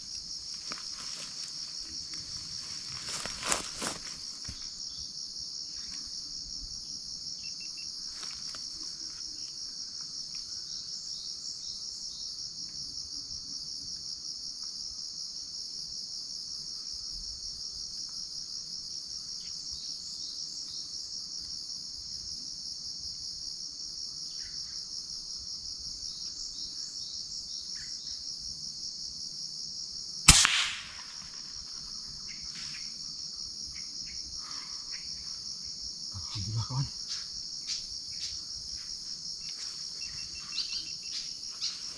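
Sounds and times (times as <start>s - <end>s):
shrill insect chorus: 0.0s - 41.9s
air rifle shot: 30.3s - 31.5s.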